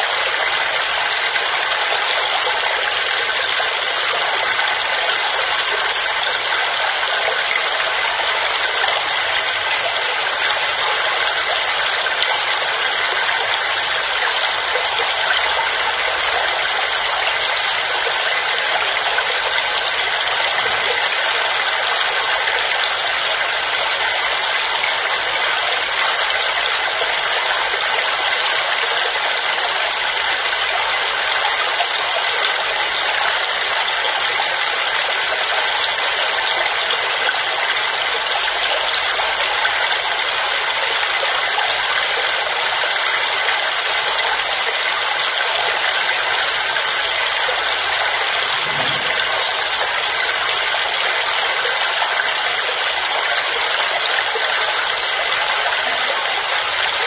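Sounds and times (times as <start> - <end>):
waterfall rushing: 46.4 - 51.4.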